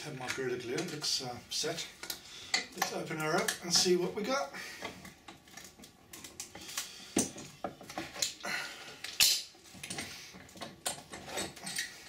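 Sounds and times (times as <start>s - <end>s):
metal clamps clicking and clattering: 0.1s - 1.2s, 9.0s - 12.0s.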